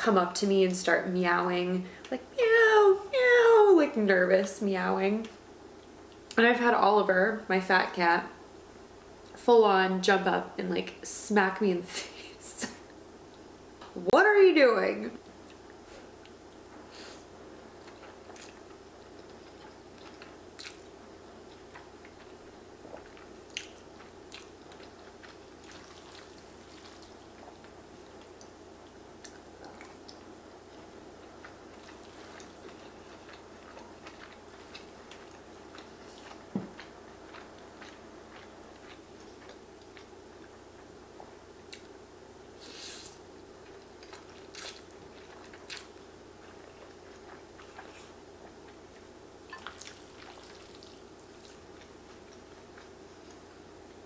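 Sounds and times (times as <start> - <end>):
faint steady hum: 0.0 - 54.0
person chewing noodles: 15.4 - 42.0, 42.6 - 54.0.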